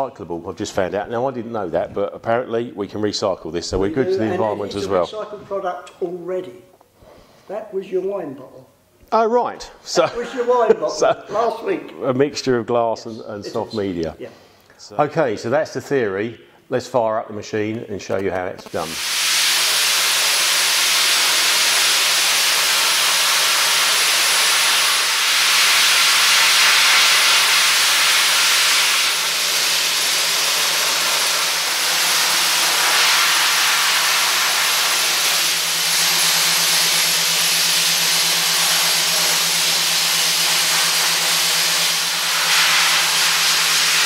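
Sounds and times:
media blaster hiss: 18.6 - 44.0.

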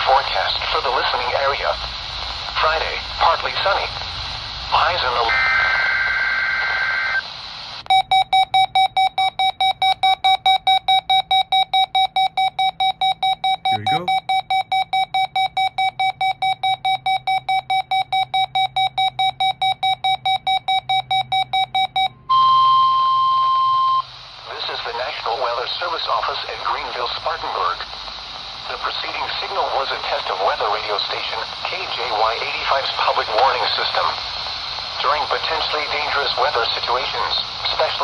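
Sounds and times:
rapid alarm beeps: 7.9 - 24.1
long steady attention tone: 7.9 - 24.2
digital data burst: 13.7 - 14.1.

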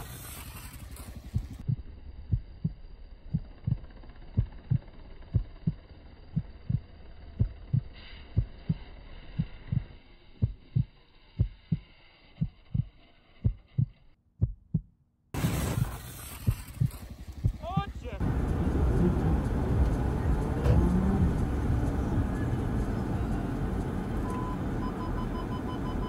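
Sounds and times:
heartbeat thumps: 1.2 - 5.8, 6.4 - 8.8, 9.4 - 14.9, 16.5 - 26.0
muffled background sound: 17.6 - 25.8.

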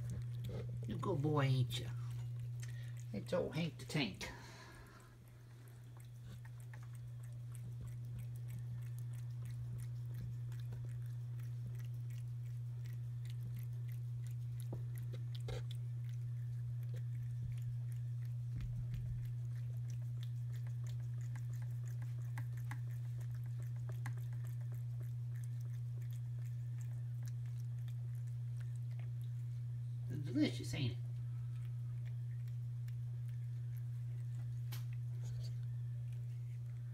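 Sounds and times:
cat chewing and licking food: 0.0 - 36.9
steady low hum: 0.0 - 36.9
wet clicks: 31.6 - 36.3.

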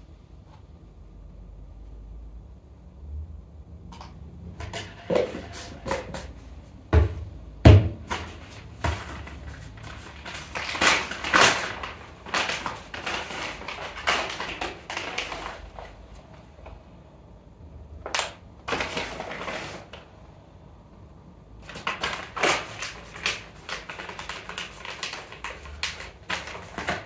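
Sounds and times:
objects clattering and knocking: 4.0 - 16.4, 21.7 - 27.0.

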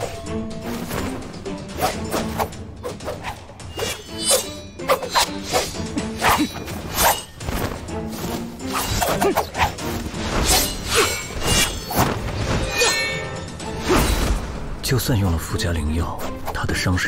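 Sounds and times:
background music: 0.0 - 17.0
sword swishes: 1.8 - 13.2.

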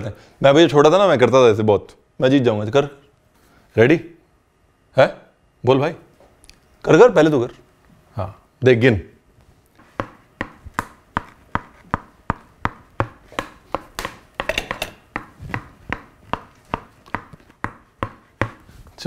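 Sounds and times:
tennis ball bouncing on wooden board: 10.0 - 18.6.

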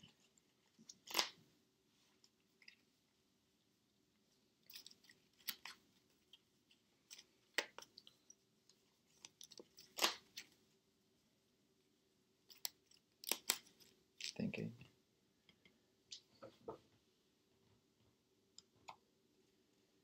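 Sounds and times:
cards clicking and snapping: 0.9 - 1.4, 9.2 - 10.5, 12.5 - 14.4.

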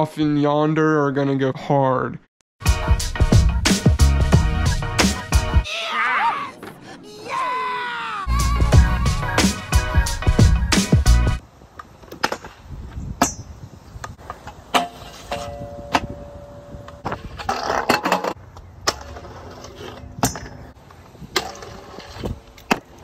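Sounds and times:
scooter wheels rolling on concrete: 14.0 - 23.0
scooter grinding on ledge and rail: 14.2 - 23.0.

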